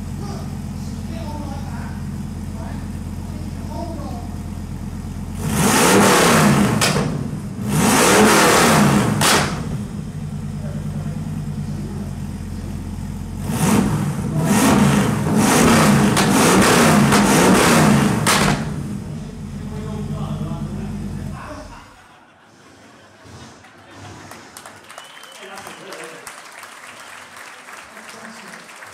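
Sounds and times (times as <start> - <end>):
motorcycle engine revving and idling: 0.0 - 21.8.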